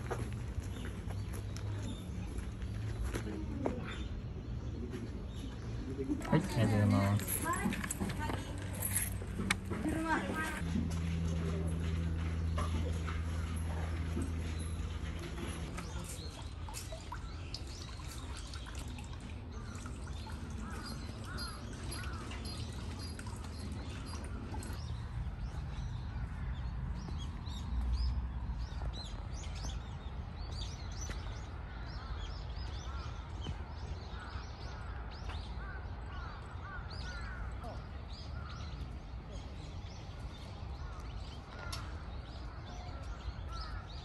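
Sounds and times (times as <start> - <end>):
low outdoor rumble: 5.9 - 17.2.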